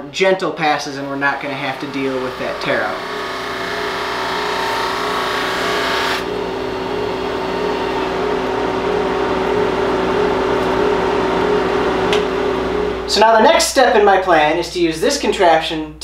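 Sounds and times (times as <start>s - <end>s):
machine humming: 0.7s - 14.5s
drum sander sanding wood: 1.1s - 8.6s.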